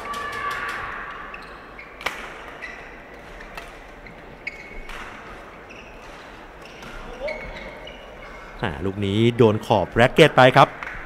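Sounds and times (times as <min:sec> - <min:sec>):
shoes squeaking on court floor: 0:01.3 - 0:08.6.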